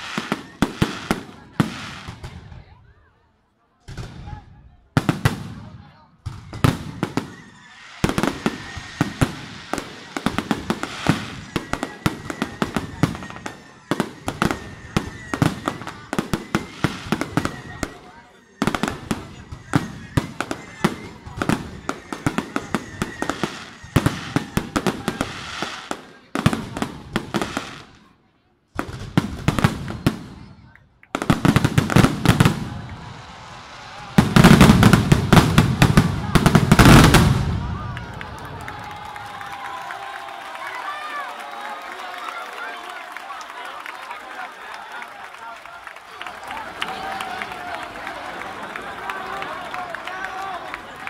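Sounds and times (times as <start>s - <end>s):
fireworks bangs: 0.0s - 2.8s, 3.8s - 28.0s, 28.7s - 42.2s.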